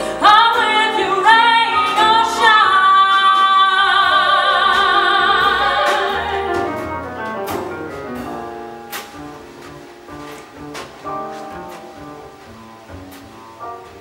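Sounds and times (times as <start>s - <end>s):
soprano singing with vibrato: 0.0s - 7.1s
grand piano: 0.0s - 14.0s.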